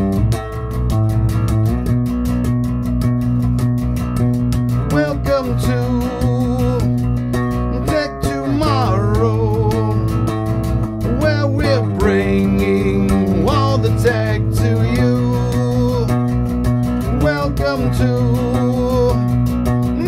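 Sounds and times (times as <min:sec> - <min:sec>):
electric bass guitar: 0:00.0 - 0:20.0
fast ticking beat: 0:00.0 - 0:20.0
man singing: 0:04.7 - 0:20.0.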